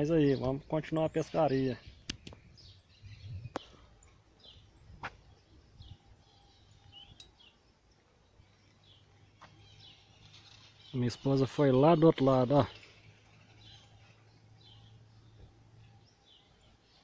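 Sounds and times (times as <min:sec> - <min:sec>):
small birds chirping: 0:00.0 - 0:17.0
sharp clicks: 0:02.0 - 0:02.4.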